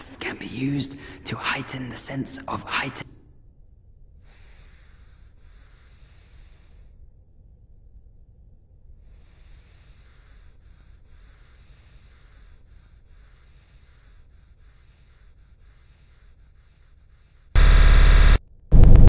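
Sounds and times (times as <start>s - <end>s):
loud distorted blast: 17.6s - 19.0s.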